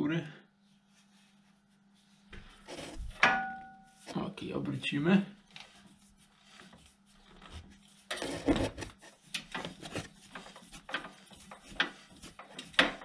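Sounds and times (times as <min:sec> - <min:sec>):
rubbing and scraping: 0:00.7 - 0:03.2, 0:05.4 - 0:13.0.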